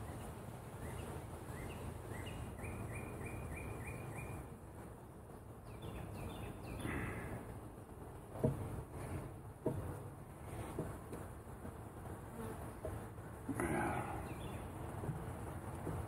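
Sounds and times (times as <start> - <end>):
songbird chirping: 0.0 - 4.6, 5.4 - 7.4, 13.5 - 14.9
honeybees humming: 0.0 - 16.0.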